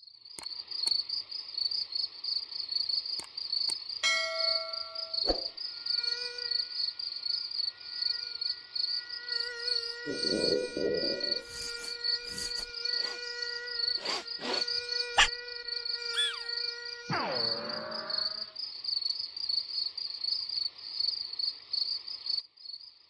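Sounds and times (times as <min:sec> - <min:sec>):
crickets chirping: 0:00.0 - 0:23.0
bell-like ding: 0:04.0 - 0:05.5
mosquito wing whine: 0:05.1 - 0:18.7.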